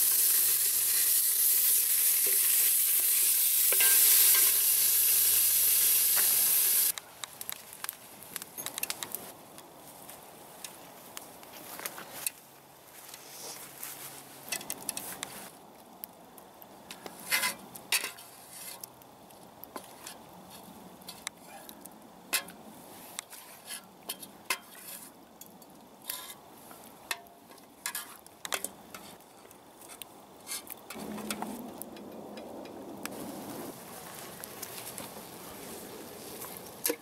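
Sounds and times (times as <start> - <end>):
cookpot and utensils clinking: 3.7 - 4.6.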